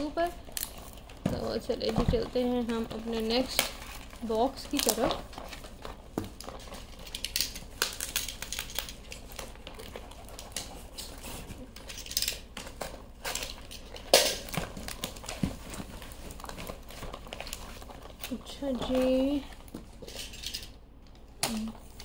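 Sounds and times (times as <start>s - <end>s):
objects knocking and clattering: 0.0s - 4.0s
packaging rustling: 0.0s - 22.0s.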